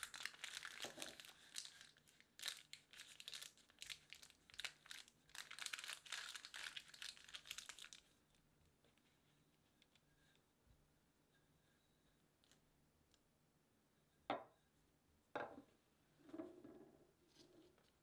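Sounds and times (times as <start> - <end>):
parchment paper crinkling: 0.0 - 8.0.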